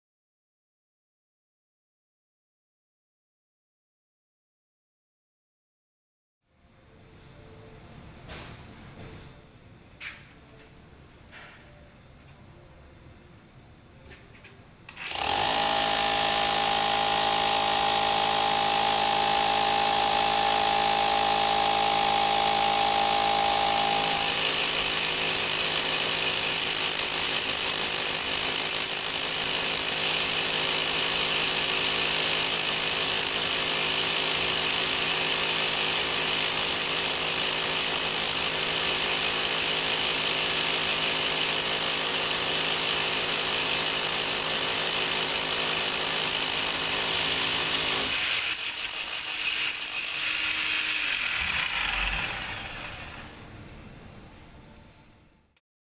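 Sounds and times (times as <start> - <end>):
drill bit cutting into brick: 14.9 - 53.3
hammer drill whine: 15.0 - 53.3.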